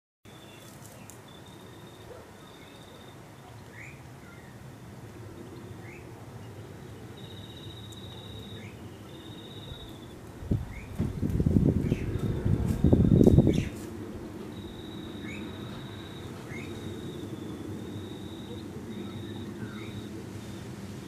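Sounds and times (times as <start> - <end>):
rising bird chirps: 5.4 - 11.0, 12.8 - 13.8, 14.5 - 20.6
high buzzing insect trills: 6.4 - 10.2, 11.6 - 20.6.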